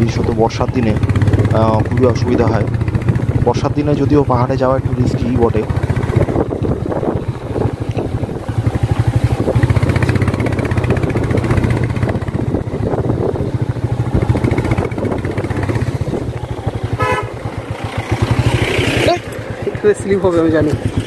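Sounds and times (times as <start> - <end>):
motorcycle engine under load: 0.0 - 21.0.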